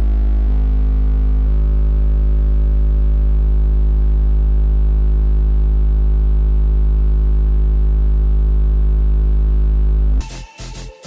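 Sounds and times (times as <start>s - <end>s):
very deep subwoofer tone: 0.0s - 11.0s.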